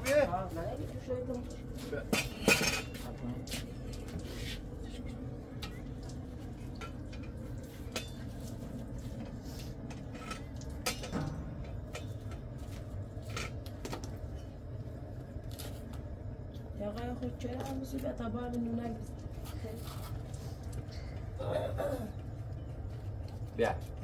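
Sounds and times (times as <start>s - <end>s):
dishes and utensils clinking: 2.0s - 3.2s, 10.0s - 12.4s
dishes clattering: 2.1s - 3.1s, 10.0s - 12.4s.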